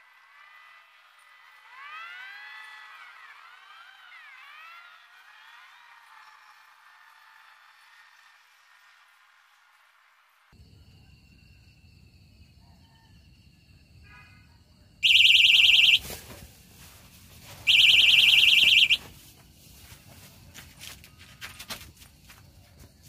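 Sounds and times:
fishing bite alarm beeping: 15.0s - 16.0s, 17.7s - 19.0s.

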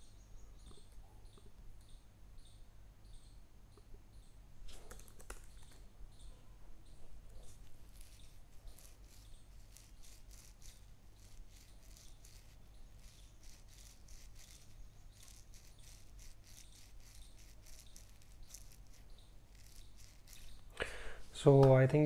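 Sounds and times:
high-pitched ticks and crackles: 7.9s - 20.6s.

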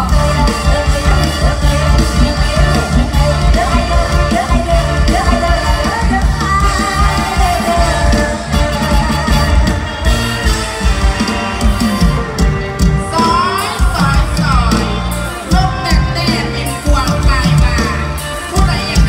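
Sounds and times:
woman singing: 0.0s - 10.0s, 15.4s - 19.0s
band playing bass-heavy beat: 0.0s - 19.0s.

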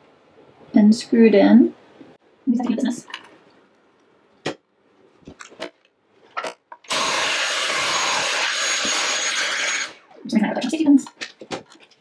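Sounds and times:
handheld vacuum cleaner whine: 6.9s - 10.0s.

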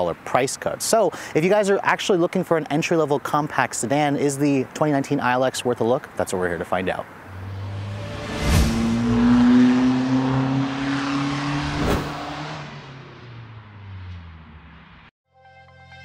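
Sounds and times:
rushing whoosh: 7.3s - 12.7s
car engine revving: 7.3s - 15.0s
sharp hit: 7.4s - 9.6s.

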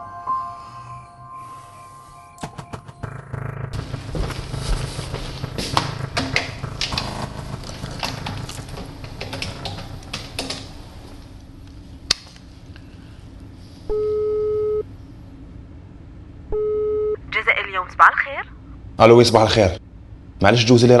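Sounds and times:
clicks and knocks: 2.4s - 10.7s
telephone ringback tone: 13.9s - 14.8s, 16.6s - 17.2s.

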